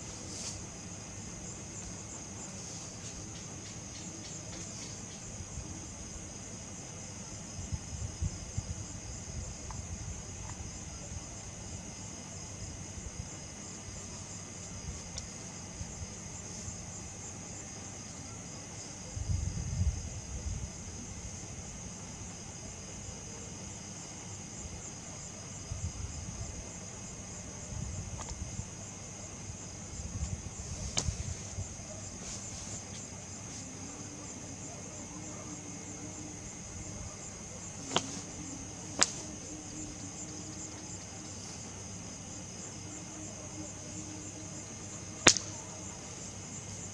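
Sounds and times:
crickets chirping: 0.0 - 46.9
soft bumps: 30.2 - 33.6
sharp click: 45.2 - 45.5.

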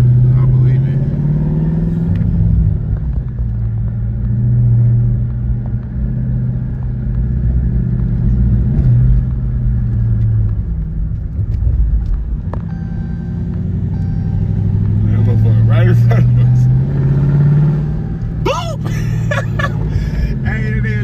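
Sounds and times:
car engine droning: 0.0 - 21.0.

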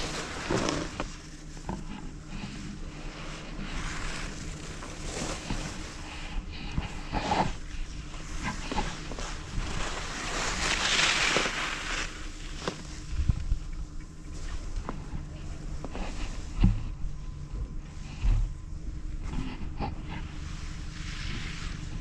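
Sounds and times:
snowboard scraping over snow: 0.0 - 1.2, 8.2 - 12.9.

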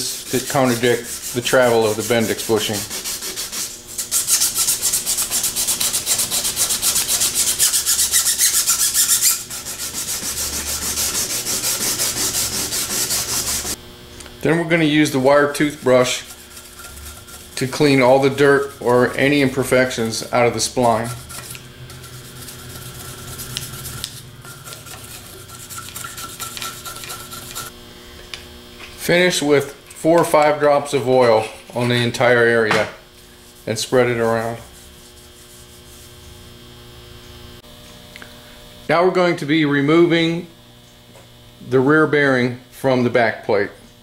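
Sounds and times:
sandpaper rubbing on steel: 0.0 - 13.8, 15.6 - 27.7, 33.5 - 36.2
wire brush scrubbing metal: 0.0 - 13.8, 14.5 - 27.7, 33.4 - 36.2.

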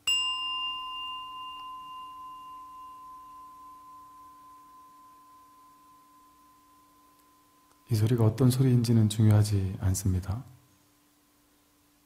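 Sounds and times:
bowl bell ringing: 0.0 - 8.0.

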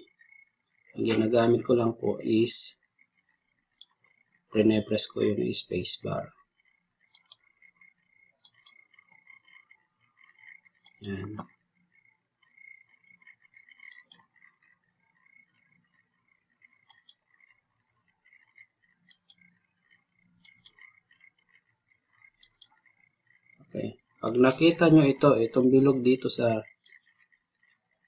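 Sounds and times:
faint steady background noise: 0.0 - 28.0
computer mouse clicks: 3.7 - 4.4, 6.6 - 23.6, 26.7 - 28.0
computer mouse button clicking: 7.1 - 7.4, 8.4 - 8.8, 10.8 - 11.5, 13.9 - 14.3, 16.8 - 17.2, 20.4 - 20.8, 22.4 - 22.8.

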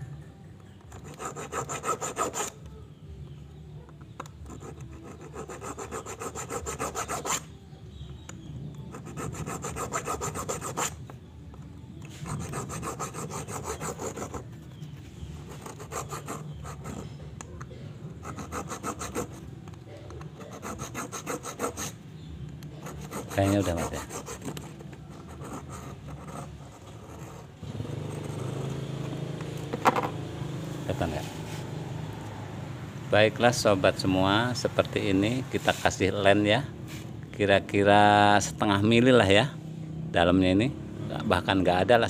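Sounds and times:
hacksaw sawing metal: 1.0 - 2.5, 12.2 - 14.4, 15.5 - 17.0, 18.2 - 19.4, 20.4 - 22.0, 22.8 - 24.6.

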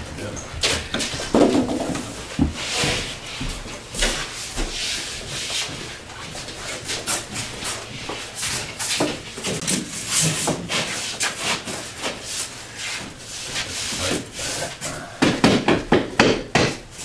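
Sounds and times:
drywall scraping against wall: 0.7 - 15.7
drywall knocks: 1.2 - 2.6, 15.2 - 16.9.

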